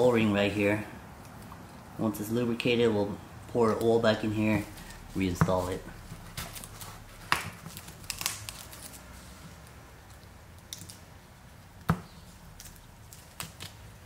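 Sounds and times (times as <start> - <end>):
faint rustling and scraping: 3.6 - 10.2.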